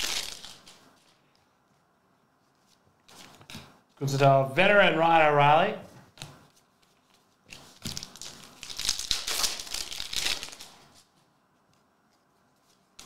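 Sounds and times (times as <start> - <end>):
plastic wrapper crinkling: 0.0 - 1.2, 6.7 - 11.1.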